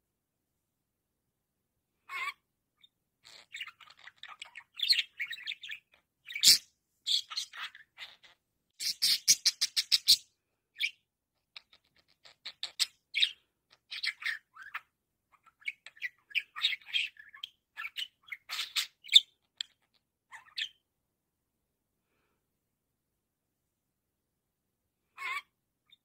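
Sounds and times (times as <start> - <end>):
budgerigar chirping and warbling: 2.1 - 20.8, 25.2 - 26.0.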